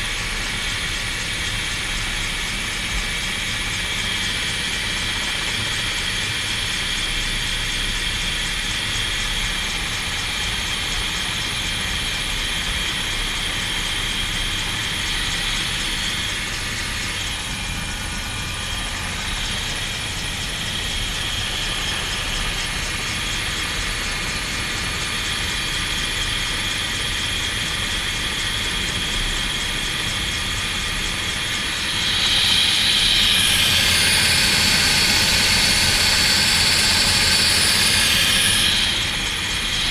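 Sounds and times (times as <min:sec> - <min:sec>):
helicopter running: 0:00.0 - 0:39.9.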